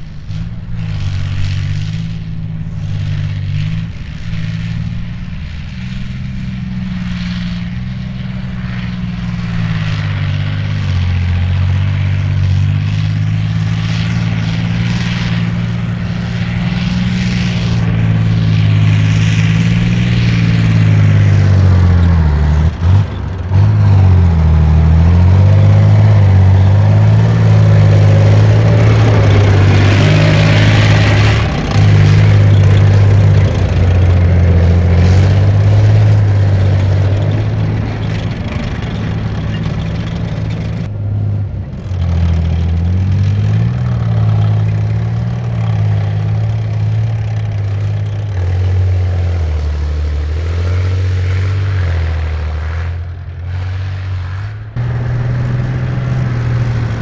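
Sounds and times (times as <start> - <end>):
tracked vehicle diesel engine: 0.0 - 57.0.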